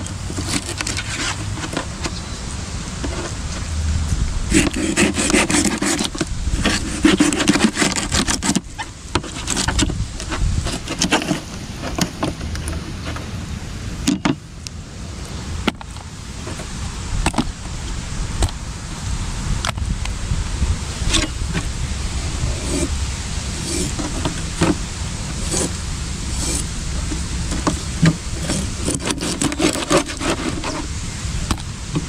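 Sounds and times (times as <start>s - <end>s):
scraping fish: 0.0s - 2.2s, 4.5s - 13.3s, 20.9s - 32.0s
steady low rumble: 1.4s - 7.1s, 8.6s - 29.0s
scattered clicks and knocks: 14.0s - 14.4s.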